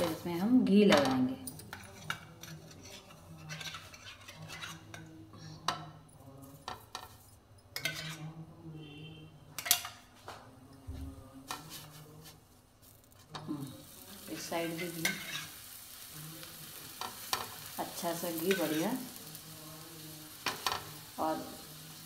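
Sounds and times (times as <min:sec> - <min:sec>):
kitchen utensils clinking: 0:09.6 - 0:10.1.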